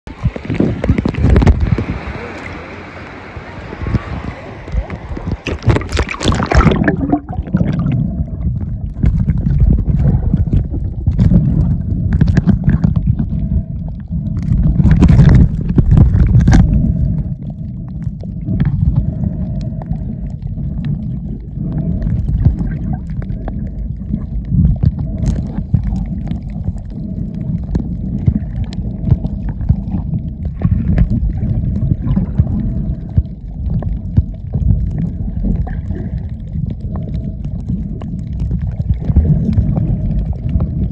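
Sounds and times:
underwater rumble and water movement: 0.0 - 40.9.

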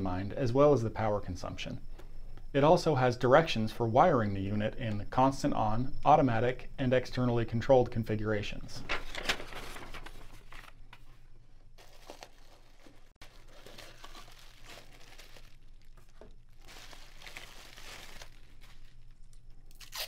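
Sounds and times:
bubble wrap crinkling: 11.8 - 20.0.

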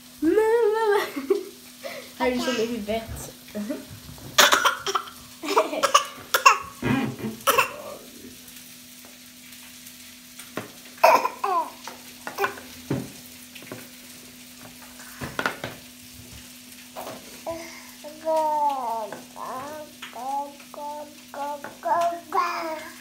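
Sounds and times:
baby vocal sounds: 11.0 - 12.6, 17.0 - 23.0.

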